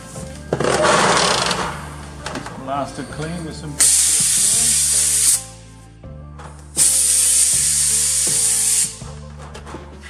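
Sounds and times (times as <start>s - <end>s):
compressed air blow gun hissing: 3.8s - 5.6s, 6.8s - 9.1s.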